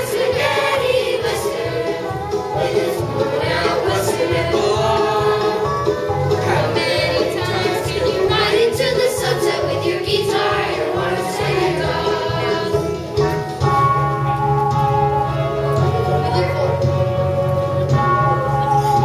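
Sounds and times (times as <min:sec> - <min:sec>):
children singing together: 0:00.0 - 0:13.5
country-style music: 0:00.0 - 0:19.0.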